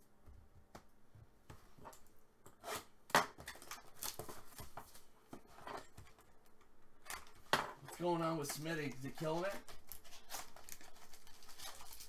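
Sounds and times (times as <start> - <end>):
cards rustling and flicking: 8.0 - 12.0.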